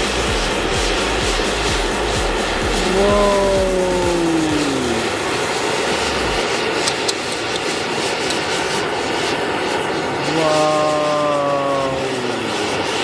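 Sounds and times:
gas torch flame hissing: 0.0s - 13.0s
falling pitched tone: 2.5s - 6.8s, 10.3s - 12.6s.

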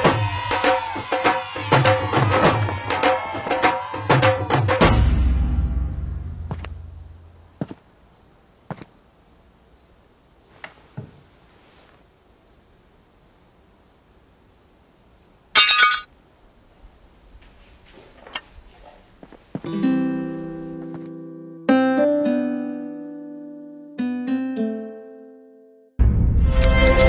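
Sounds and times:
crickets chirping: 5.7s - 21.6s.

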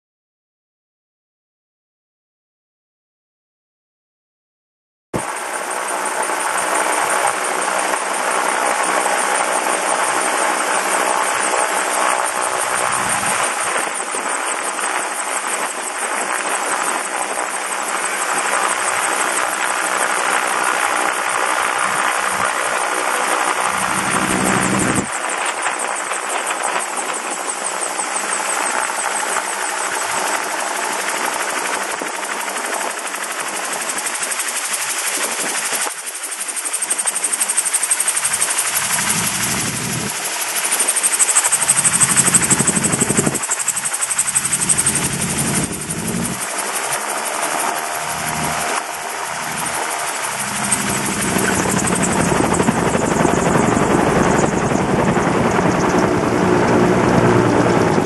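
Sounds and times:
airflow and rotor noise: 5.2s - 58.0s
engine drone: 8.5s - 14.3s, 18.1s - 25.3s, 38.1s - 58.0s.

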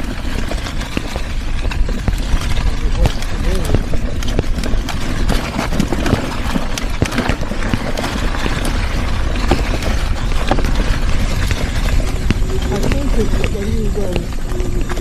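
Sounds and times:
low rumble of scooter: 0.0s - 15.0s.

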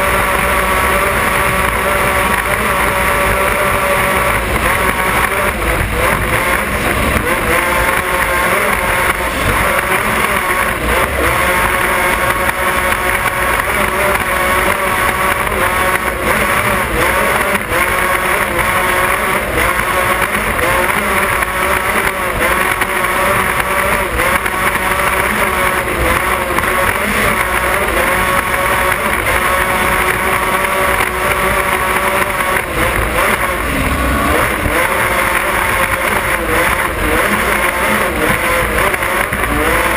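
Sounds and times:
powerboat engines at high speed: 0.0s - 39.9s.

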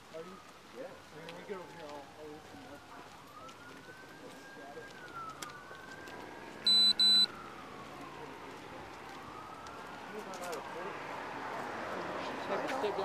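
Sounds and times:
faint siren wailing: 0.0s - 12.9s
short electronic beeps: 6.6s - 7.3s.

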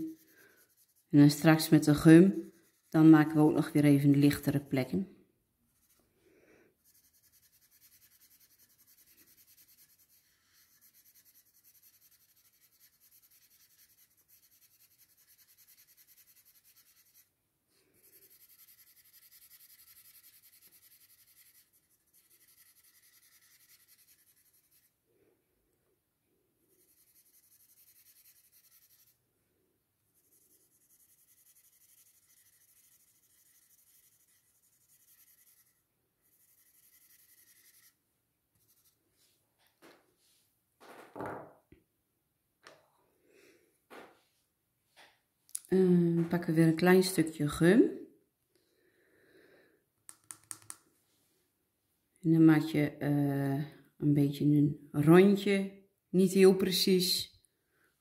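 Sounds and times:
blending stump rubbing on paper: 0.0s - 3.7s, 6.8s - 17.3s, 18.0s - 24.9s, 26.8s - 29.2s, 30.2s - 38.0s.

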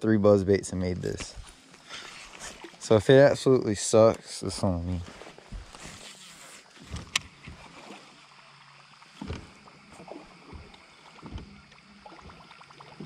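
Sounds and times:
light water sounds: 0.6s - 13.0s
dull knocks: 9.2s - 13.0s.

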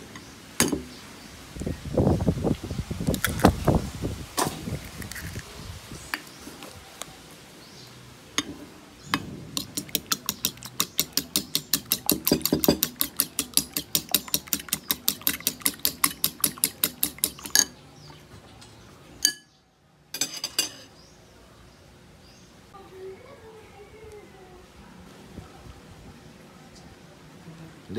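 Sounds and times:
fork clicking against bowl: 9.6s - 17.7s
fork clinking on bowl: 9.6s - 17.8s, 19.2s - 19.5s.

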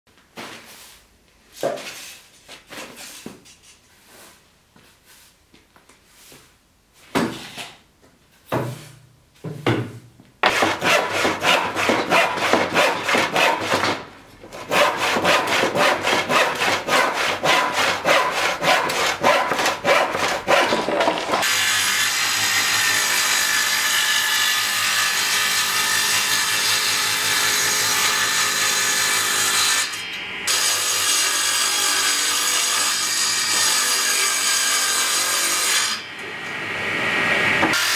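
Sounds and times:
woodworking planer running: 10.4s - 28.6s
handsaw cutting wood: 10.4s - 29.9s, 37.7s - 37.9s.

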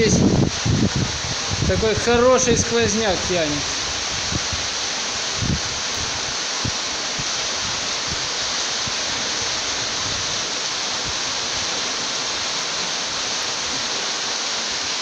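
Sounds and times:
waterfall rushing and splashing: 0.0s - 15.0s.

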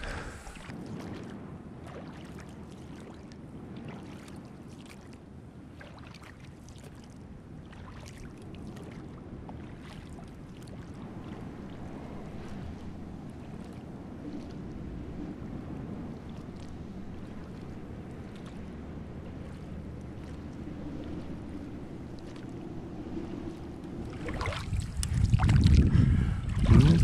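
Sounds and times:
oars splashing in water: 23.5s - 25.9s.

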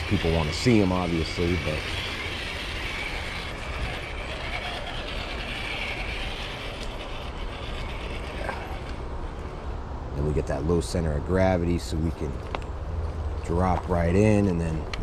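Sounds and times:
toy truck motor whining: 0.0s - 9.5s.

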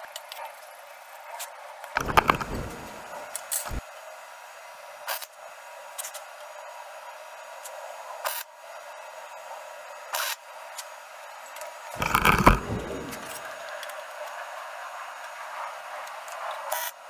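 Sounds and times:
welding arc crackling: 2.0s - 3.8s, 12.0s - 13.7s
steady hiss: 2.0s - 16.5s.

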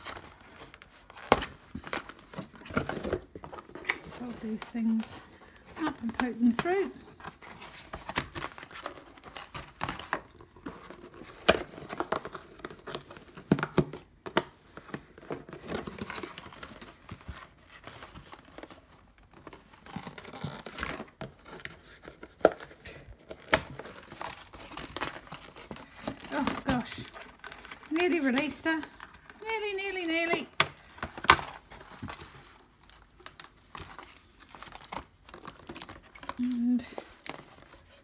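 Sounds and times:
cardboard rustling and crinkling: 0.0s - 38.0s.

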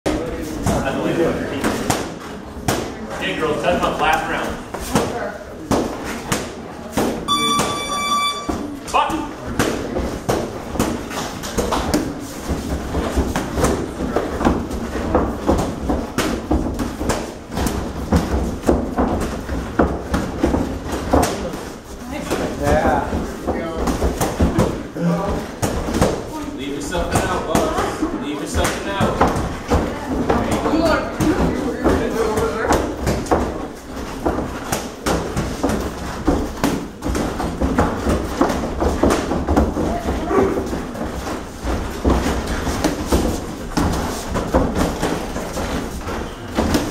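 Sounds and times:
footwork on ring canvas: 0.1s - 46.9s
boxing gloves hitting: 9.6s - 21.6s, 28.6s - 46.9s.

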